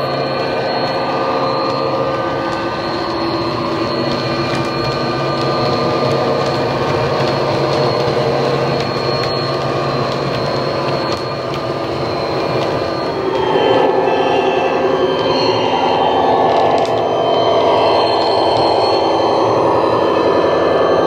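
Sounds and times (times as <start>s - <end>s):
clicks: 14.8s - 19.2s.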